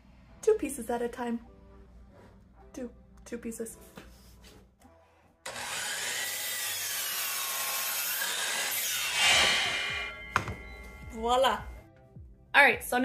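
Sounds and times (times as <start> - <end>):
miter saw cutting wood: 5.5 - 10.3.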